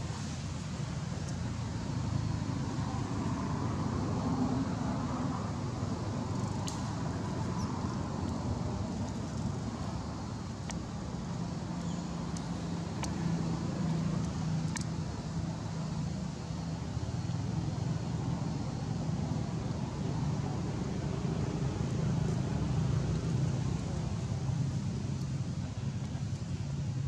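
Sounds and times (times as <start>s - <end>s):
faint clicks: 10.6s - 10.8s, 12.3s - 13.2s, 14.2s - 15.0s.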